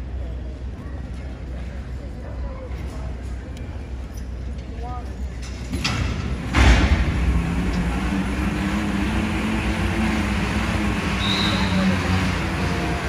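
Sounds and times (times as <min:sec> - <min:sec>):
pulling truck running under load: 0:06.2 - 0:13.0.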